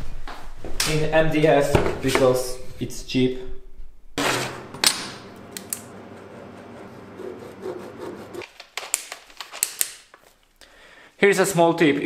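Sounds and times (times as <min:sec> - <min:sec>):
tool rasping on board: 0:06.4 - 0:08.4.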